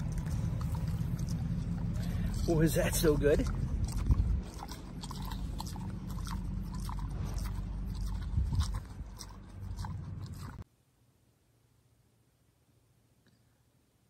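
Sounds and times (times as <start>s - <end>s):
pig chewing and smacking: 0.0s - 10.7s
wind rumble on microphone: 3.4s - 4.8s, 7.9s - 10.6s.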